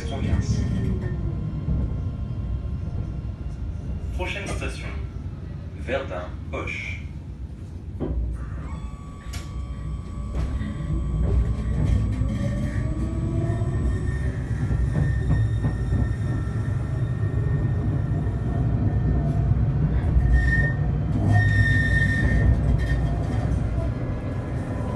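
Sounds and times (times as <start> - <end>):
tram rumble: 0.0 - 24.9
wheels squealing on rails: 8.4 - 23.9.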